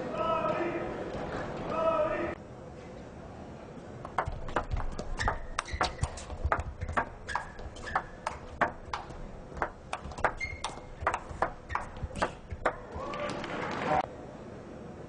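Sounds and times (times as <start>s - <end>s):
table tennis ball clicking: 4.1s - 12.9s.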